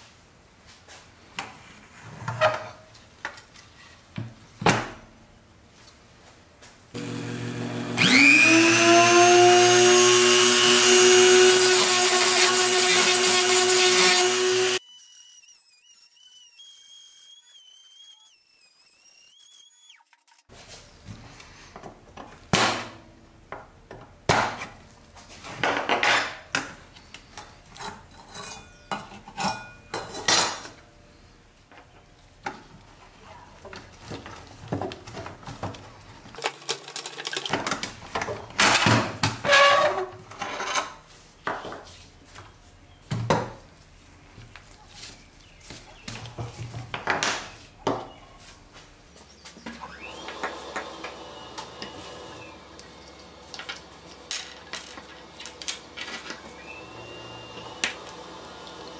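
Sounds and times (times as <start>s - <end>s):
rotary tool grinding steel: 7.0s - 20.4s.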